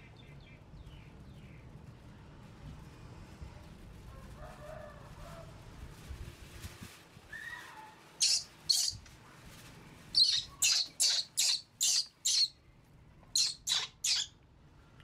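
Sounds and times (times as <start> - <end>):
baby monkey screeching: 8.2 - 9.0, 10.2 - 12.6, 13.4 - 14.3.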